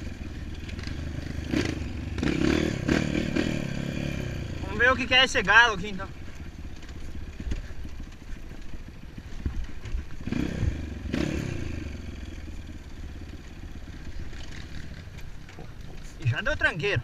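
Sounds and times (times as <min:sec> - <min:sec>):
dirt bike engine revving: 0:00.0 - 0:06.1, 0:10.1 - 0:15.2.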